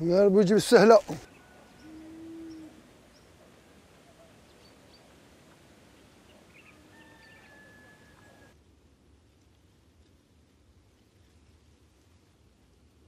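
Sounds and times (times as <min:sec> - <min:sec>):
low outdoor hiss: 0:00.0 - 0:13.0
bird chirps: 0:01.2 - 0:05.2, 0:06.0 - 0:08.5.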